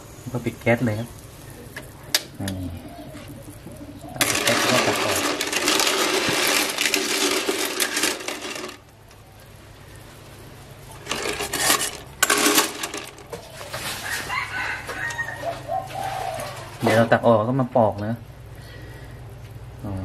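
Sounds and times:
shells clattering in a metal pot: 0:04.2 - 0:08.9, 0:11.0 - 0:13.4.

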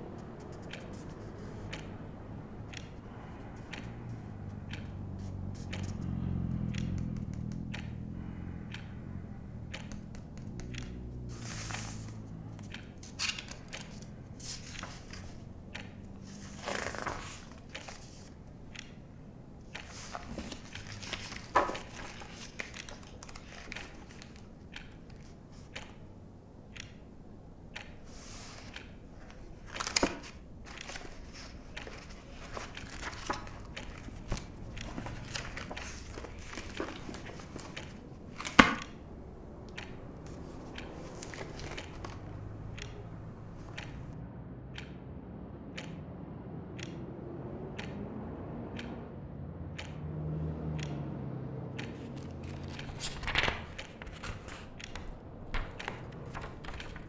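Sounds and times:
low rumble of passing traffic: 0:00.0 - 0:57.0
small clicks and knocks: 0:00.1 - 0:19.0, 0:19.6 - 0:27.1, 0:27.7 - 0:39.0, 0:39.6 - 0:44.2, 0:49.8 - 0:50.0, 0:50.7 - 0:57.0
paper rustling and crinkling: 0:16.2 - 0:18.3, 0:19.9 - 0:24.4, 0:29.6 - 0:38.8, 0:41.0 - 0:42.2, 0:52.2 - 0:57.0.

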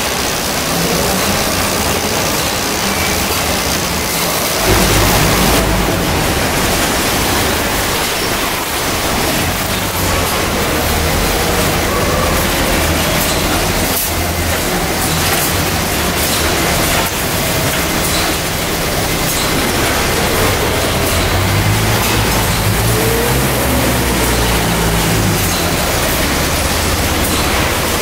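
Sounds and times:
conveyor machinery hum: 0:00.0 - 0:28.0
low rumble: 0:04.6 - 0:10.5.

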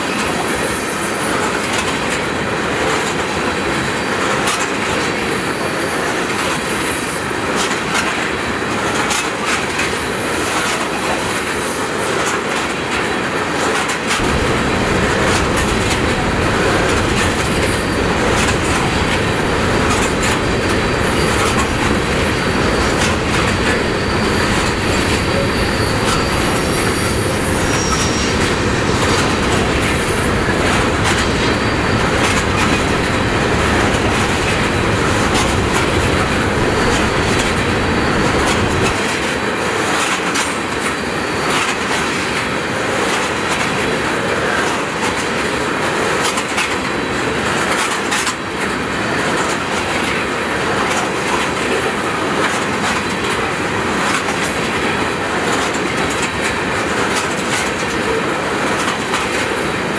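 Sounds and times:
low train rumble: 0:00.0 - 0:59.9
train wheels clattering over rail joints: 0:00.0 - 0:59.9
high wheel squeal: 0:16.3 - 0:33.6.

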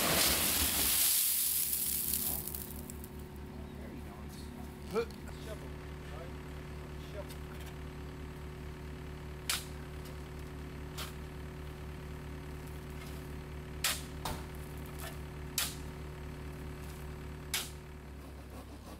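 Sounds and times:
shovel scraping gravel: 0:00.0 - 0:03.0, 0:10.9 - 0:11.2
steady low hum: 0:00.3 - 0:18.9.

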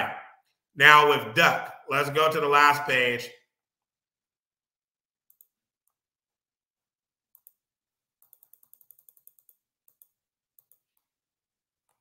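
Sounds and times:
mouse scroll-wheel ticks: 0:05.3 - 0:06.0, 0:07.3 - 0:11.2.

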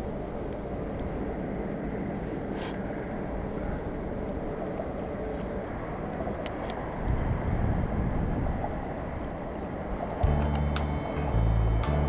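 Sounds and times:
wind buffeting microphone: 0:00.0 - 0:11.9
low outdoor rumble: 0:00.0 - 0:12.0.

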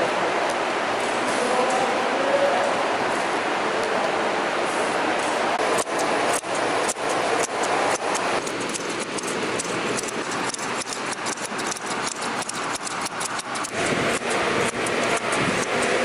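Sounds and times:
scissors snipping yarn: 0:05.6 - 0:16.0.

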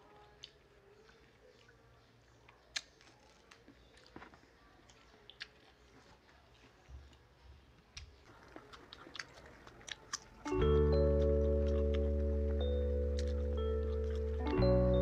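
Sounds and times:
people chewing crunchy fruit: 0:00.0 - 0:15.0
mouth clicks: 0:08.0 - 0:15.0
music with chime-like tones: 0:10.5 - 0:15.0.

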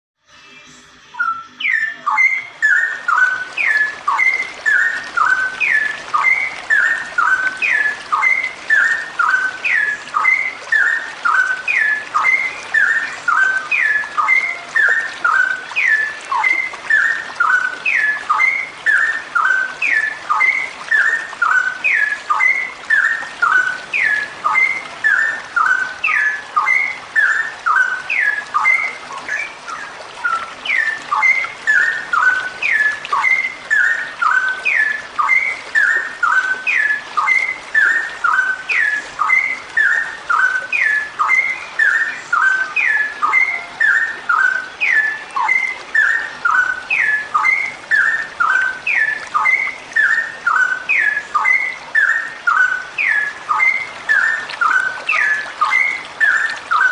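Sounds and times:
bird whistled calling: 0:01.1 - 0:56.9.

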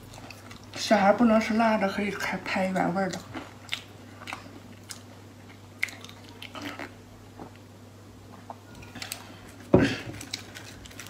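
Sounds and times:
chewing mouth sounds: 0:03.0 - 0:07.6.

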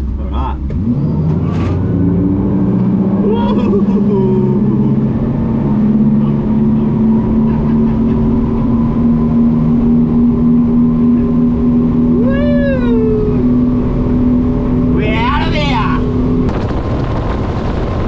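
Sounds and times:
boat engine droning: 0:00.0 - 0:18.0
person whooping: 0:12.1 - 0:13.6.

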